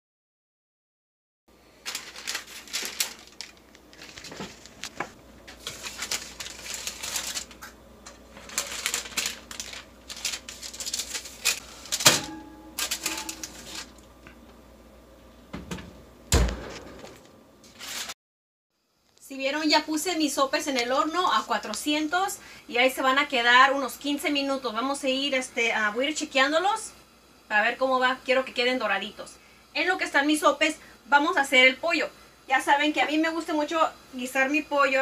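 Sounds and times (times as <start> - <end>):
paper rustling: 1.8 - 14.1, 16.7 - 18.2
metal racks and pans clattering: 8.4 - 14.0, 15.6 - 18.1
oven door thumping shut: 12.0 - 12.5, 15.5 - 17.3
sharp metallic clank: 12.0 - 13.6.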